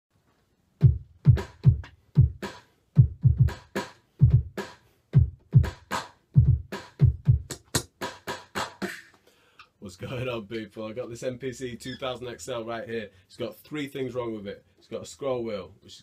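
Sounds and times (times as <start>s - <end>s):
hip-hop drum beat: 0.8s - 9.2s.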